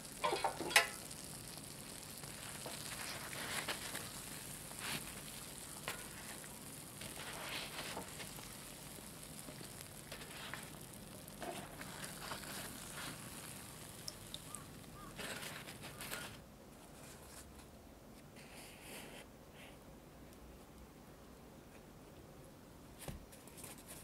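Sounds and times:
donuts sizzling in hot oil: 0:00.0 - 0:16.5.

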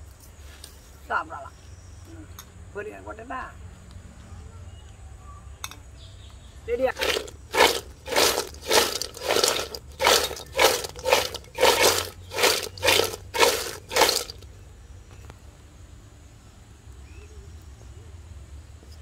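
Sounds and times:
chips rattling in metal bowl: 0:06.9 - 0:14.4.

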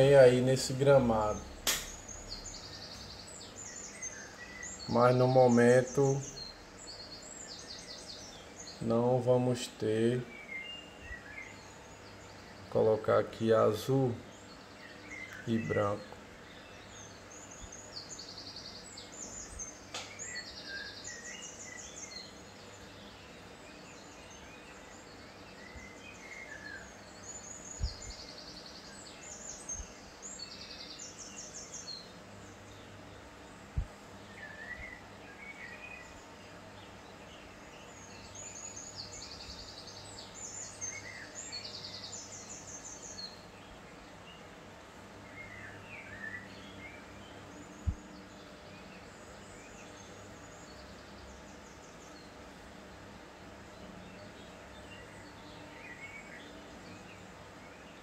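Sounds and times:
birds trilling and chirping: 0:00.0 - 0:58.0
steady low hum: 0:00.0 - 0:58.0.

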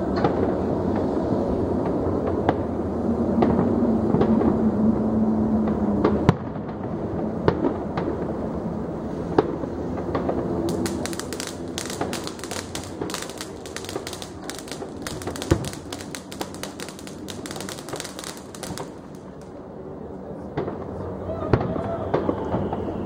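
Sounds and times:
firework bangs: 0:09.4 - 0:19.6
firecracker pops crackling: 0:10.0 - 0:19.6.

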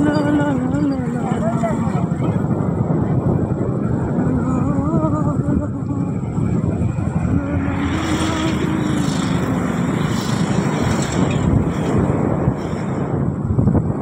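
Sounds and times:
motorcycle engines humming: 0:00.0 - 0:13.3
road and wind noise: 0:00.0 - 0:14.0
steady engine tone: 0:03.7 - 0:12.4.

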